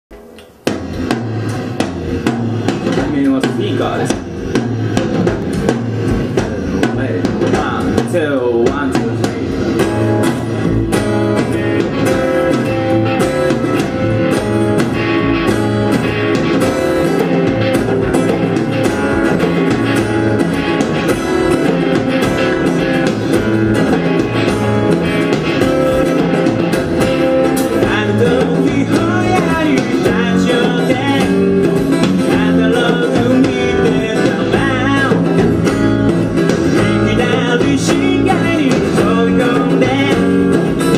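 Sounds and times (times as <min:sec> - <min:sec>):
acoustic guitar: 0:00.1 - 0:40.9
bass guitar: 0:00.1 - 0:40.9
drum kit: 0:00.1 - 0:40.9
electric guitar: 0:00.1 - 0:40.9
man singing: 0:02.8 - 0:04.3, 0:06.4 - 0:09.6, 0:27.6 - 0:40.9.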